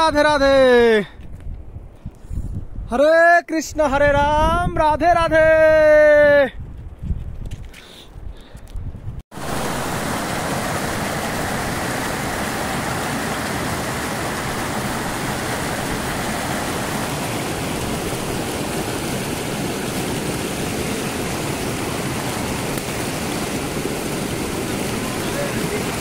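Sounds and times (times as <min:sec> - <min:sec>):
stream rushing over rocks: 0:09.3 - 0:26.0.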